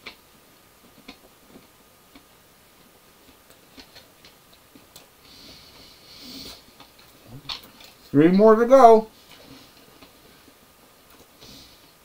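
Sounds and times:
soft hissing breath: 0:05.2 - 0:07.4, 0:09.2 - 0:12.0.

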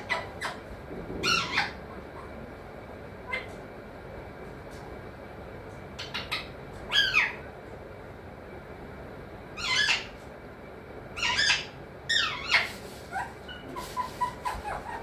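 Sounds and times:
parakeet squawking: 0:00.0 - 0:02.4, 0:03.2 - 0:03.5, 0:06.0 - 0:07.4, 0:09.6 - 0:10.2, 0:11.2 - 0:15.0.

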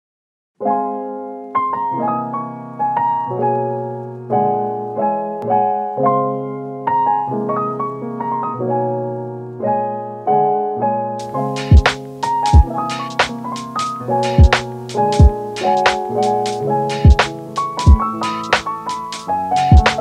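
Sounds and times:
slow piano music: 0:00.6 - 0:20.0.

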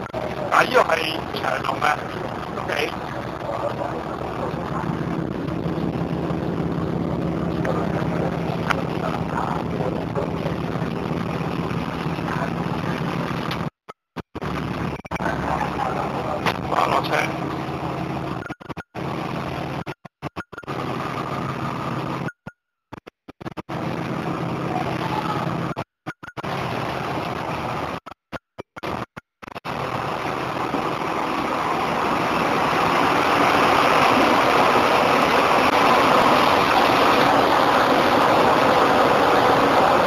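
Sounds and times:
diesel bus engine idling: 0:00.0 - 0:13.6, 0:14.4 - 0:18.4, 0:29.7 - 0:40.0
din of idling bus engines: 0:00.0 - 0:13.7, 0:14.4 - 0:18.4, 0:23.7 - 0:25.7, 0:29.7 - 0:40.0.

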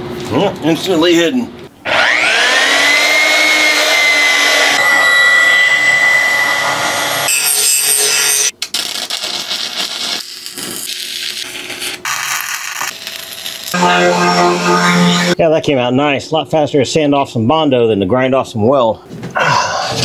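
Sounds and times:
power tool sanding whine: 0:01.8 - 0:08.5, 0:13.8 - 0:15.4
welding arc crackling: 0:07.5 - 0:13.8.

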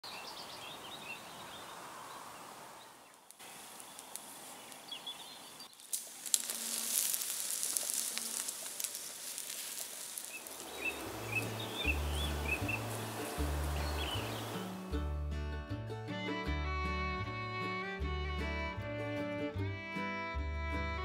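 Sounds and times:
birds chirping: 0:00.0 - 0:06.8, 0:07.7 - 0:15.0
sausages sizzling on coals: 0:03.3 - 0:14.9.

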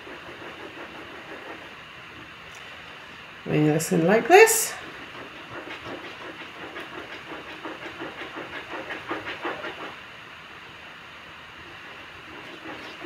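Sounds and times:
fork beating eggs: 0:00.0 - 0:01.7, 0:04.8 - 0:10.0, 0:12.2 - 0:13.0.

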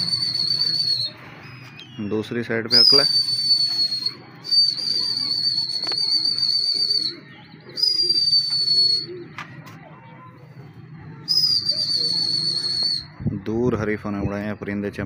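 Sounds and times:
whistle blasts: 0:00.0 - 0:02.1, 0:02.7 - 0:09.2, 0:11.3 - 0:13.2.

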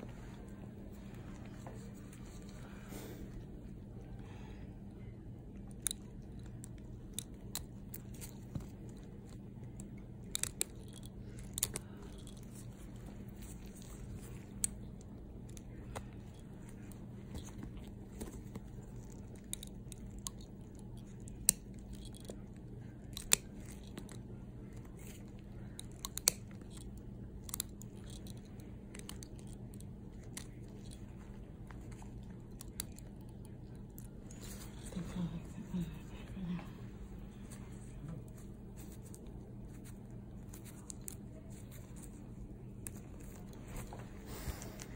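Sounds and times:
steady low hum: 0:00.0 - 0:44.9
nail nippers clicking and crunching: 0:05.6 - 0:34.7.

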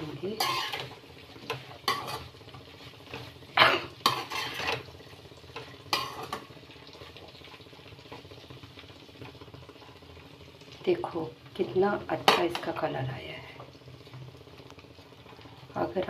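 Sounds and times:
metal spatula scraping a pan: 0:00.0 - 0:06.5.

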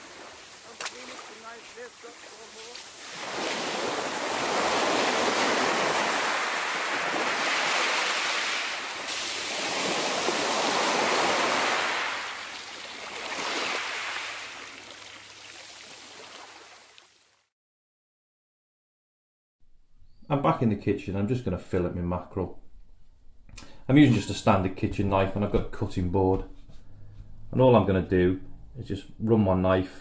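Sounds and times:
waves breaking on shingle beach: 0:00.0 - 0:17.2.

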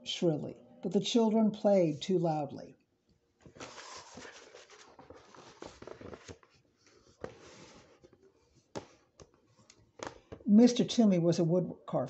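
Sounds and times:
book page rustling: 0:03.4 - 0:10.4.

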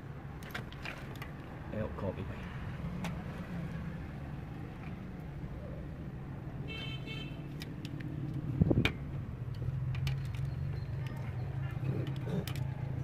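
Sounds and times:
road traffic hum: 0:00.0 - 0:13.0
car horn toot: 0:06.7 - 0:07.4.

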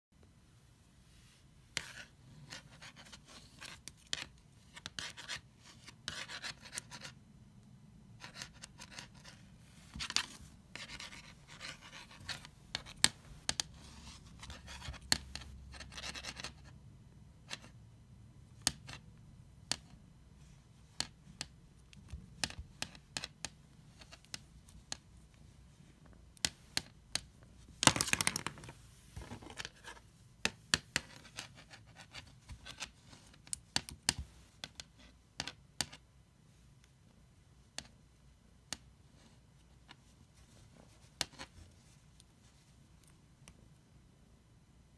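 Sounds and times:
cat claws scratching floor: 0:08.2 - 0:16.7.

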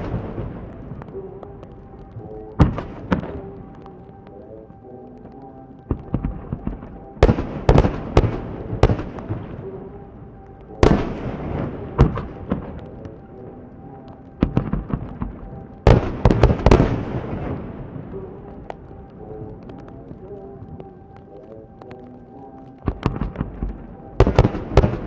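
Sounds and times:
fireworks bangs and cracks: 0:22.9 - 0:25.0.

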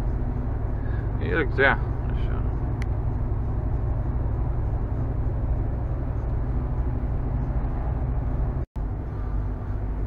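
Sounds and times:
truck engine drone: 0:00.0 - 0:10.0
tyre and road noise: 0:00.0 - 0:10.0.

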